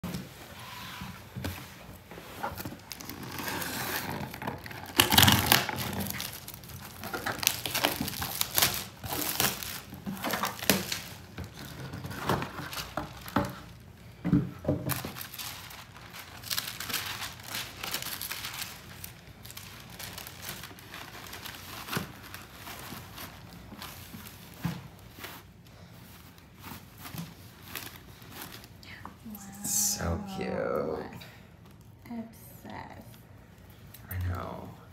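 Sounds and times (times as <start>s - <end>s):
plastic wrap crinkling and tearing: 2.3s - 13.9s, 14.7s - 28.8s
tissue paper rustling: 5.5s - 13.8s, 14.9s - 28.8s.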